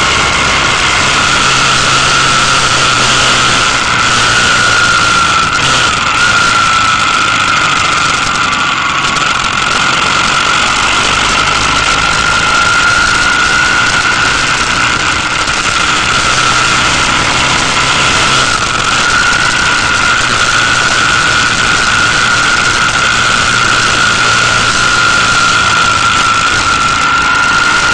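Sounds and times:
high whine: 0.0s - 27.9s
motorcycle engine running: 0.0s - 27.9s
wind rushing over microphone: 0.0s - 27.9s.

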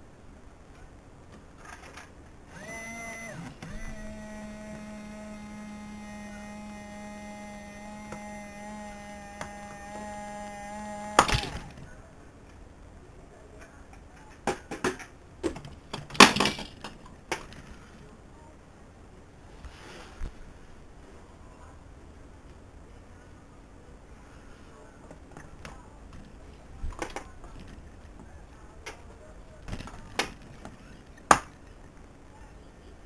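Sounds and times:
toy electric motor whining: 2.5s - 11.8s
toy mechanism knocking and clattering: 7.8s - 11.8s, 14.3s - 17.6s.

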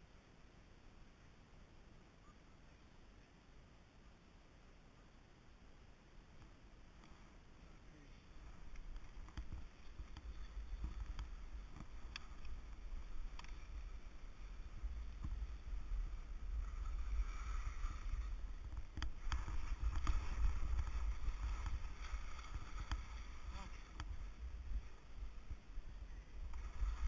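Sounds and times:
wind rumbling on microphone: 6.4s - 27.0s
skis scraping over snow: 7.1s - 27.0s.

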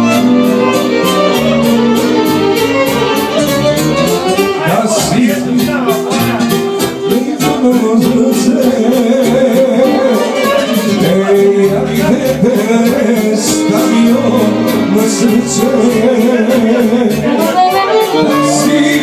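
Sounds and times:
violin: 0.0s - 7.7s, 9.4s - 11.7s, 13.6s - 19.0s
accordion: 0.0s - 19.0s
steady beat: 0.0s - 19.0s
man singing into a microphone: 4.4s - 19.0s.

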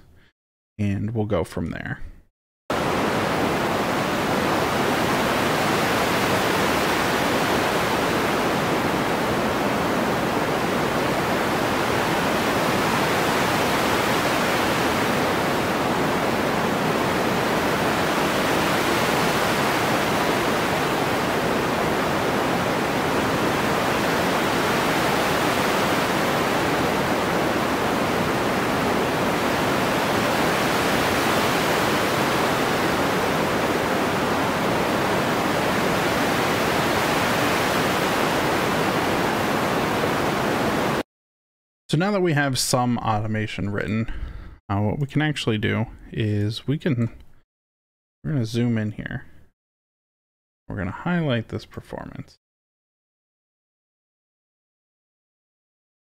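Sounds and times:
filtered synthesized hiss: 2.8s - 41.0s.

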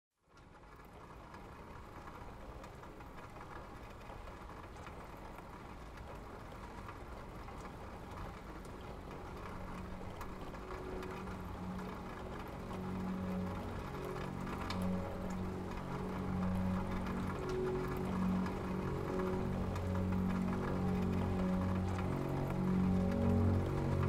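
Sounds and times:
faint crackles: 0.2s - 24.0s
soft wash of noise: 0.4s - 24.0s
low sustained drone: 9.4s - 24.0s.

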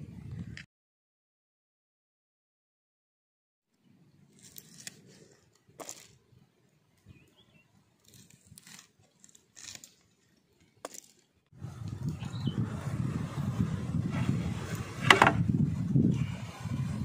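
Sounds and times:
blade slicing chillies: 4.3s - 6.2s, 8.0s - 10.2s.

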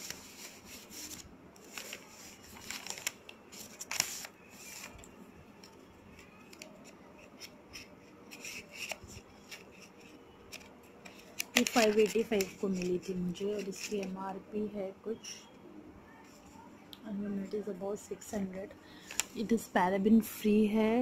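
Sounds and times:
packaging rustling and clicking: 0.8s - 14.1s.

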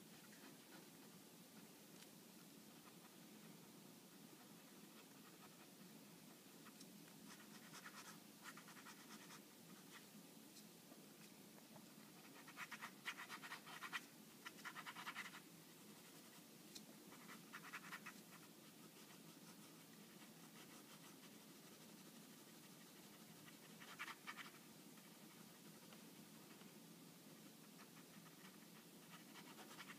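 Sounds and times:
faint low hum: 0.0s - 29.9s
pen scratching on paper: 4.1s - 10.0s, 12.0s - 16.5s, 17.1s - 26.8s, 27.4s - 29.9s.

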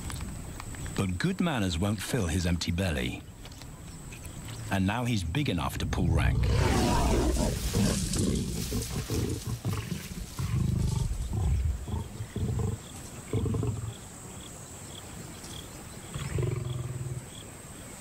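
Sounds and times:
lions growling: 5.6s - 14.0s, 16.1s - 17.2s.

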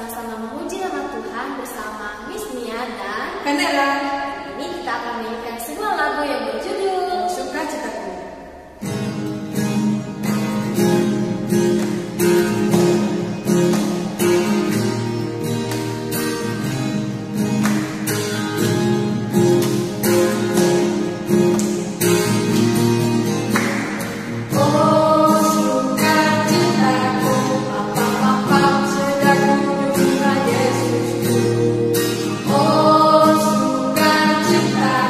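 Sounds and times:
instrumental music with steady beat: 8.9s - 26.4s
singing: 24.5s - 35.0s.

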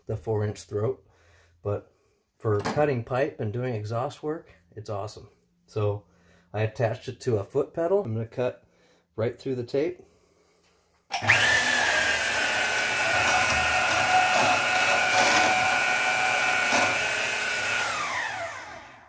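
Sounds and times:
band saw motor whining: 11.2s - 19.0s
saw blade rasping through hose: 12.7s - 17.6s.

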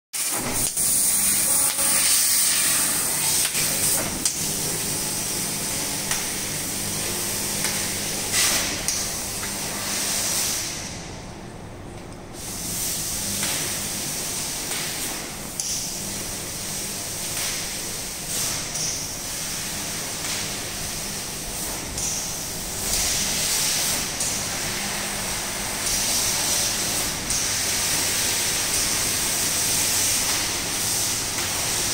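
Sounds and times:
low machine hum: 0.4s - 31.9s
hiss of assist gas: 5.1s - 10.8s, 12.4s - 15.9s.

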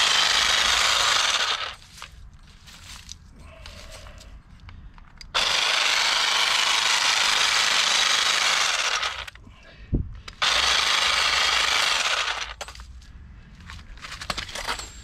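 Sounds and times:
hedge trimmer running: 0.0s - 1.8s, 5.4s - 9.3s, 10.4s - 12.7s.

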